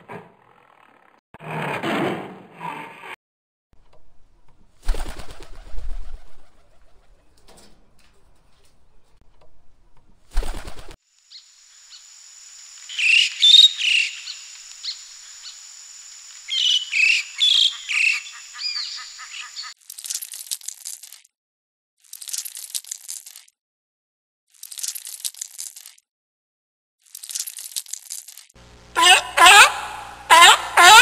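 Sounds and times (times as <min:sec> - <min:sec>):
steady high whine: 0:11.1 - 0:17.4, 0:28.6 - 0:30.8
bird calling sharply: 0:12.8 - 0:19.8, 0:29.0 - 0:31.0.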